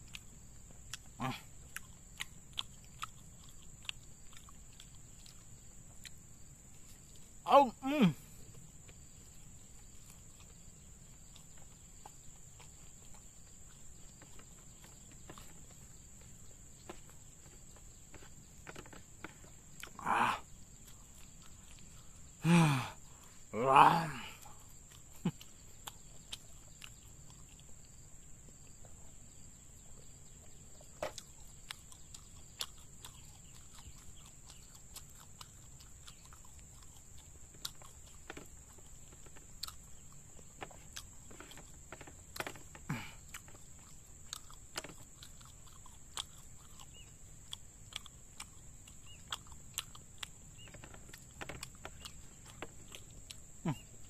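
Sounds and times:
person chewing: 0.0 - 7.4, 8.1 - 54.0
insect drone: 0.0 - 54.0
short voice-like sounds: 7.4 - 8.3, 20.0 - 20.5, 22.4 - 24.4.

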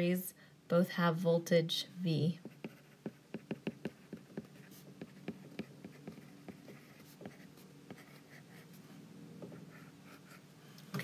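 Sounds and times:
stylus tapping and scratching: 2.4 - 8.3.

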